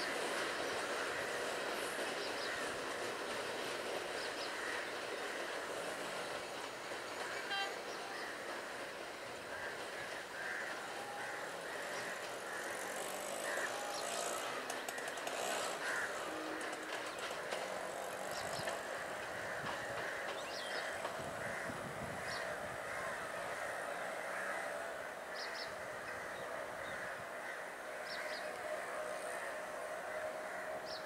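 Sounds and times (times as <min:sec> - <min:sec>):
train rumbling by: 0:00.0 - 0:31.0
wheels clacking over rail joints: 0:00.0 - 0:31.0.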